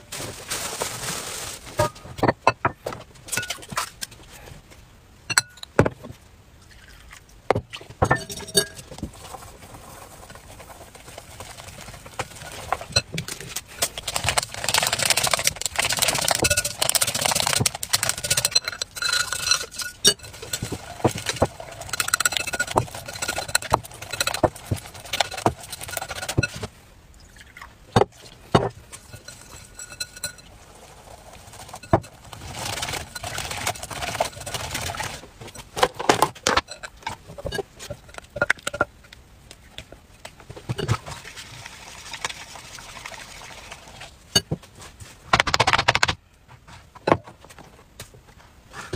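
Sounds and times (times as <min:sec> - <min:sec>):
whisk clinking against glass bowl: 0:29.0 - 0:30.5.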